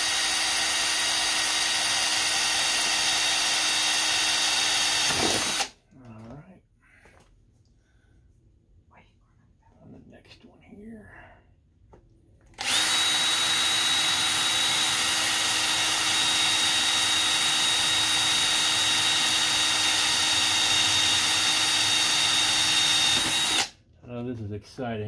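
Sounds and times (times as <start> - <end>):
power drill boring sheet metal: 0.0 - 5.8, 12.6 - 23.7.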